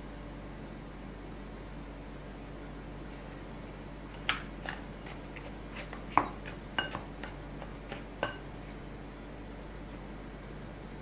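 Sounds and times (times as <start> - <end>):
scraper stirring flour in bowl: 4.1 - 8.9.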